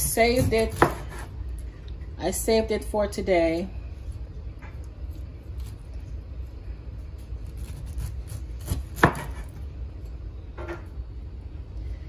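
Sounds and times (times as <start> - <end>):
cleaver cutting pineapple rind: 0.0 - 1.3, 7.2 - 9.6.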